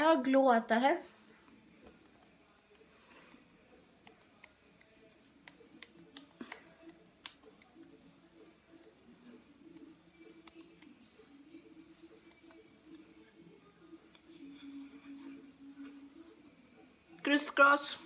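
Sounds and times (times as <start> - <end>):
fingertips tapping on skin: 1.1 - 14.5.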